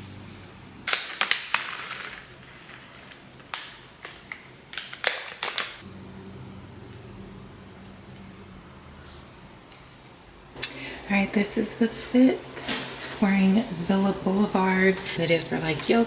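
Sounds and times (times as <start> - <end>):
low steady hum: 5.8 - 16.0.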